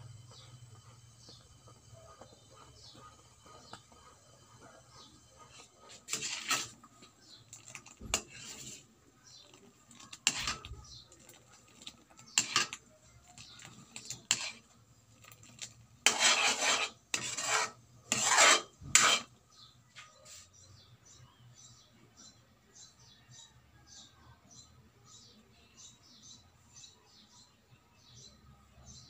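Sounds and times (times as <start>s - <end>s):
metal spoon scraping wok: 0.0s - 19.7s.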